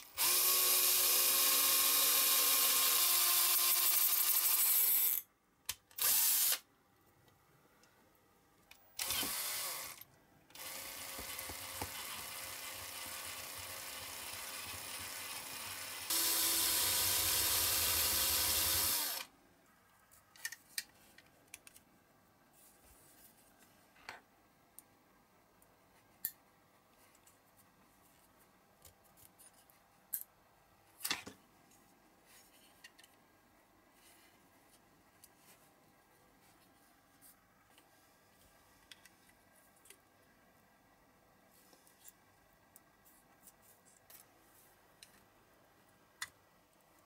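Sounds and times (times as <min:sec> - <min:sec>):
power drill on metal: 0:00.2 - 0:05.2, 0:06.0 - 0:06.6, 0:09.0 - 0:19.3.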